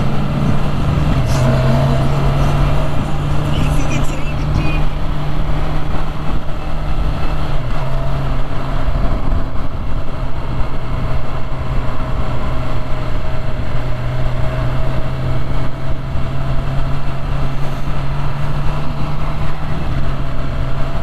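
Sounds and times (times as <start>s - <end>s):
motorcycle engine running: 0.0s - 21.0s
wind and road noise: 0.0s - 21.0s.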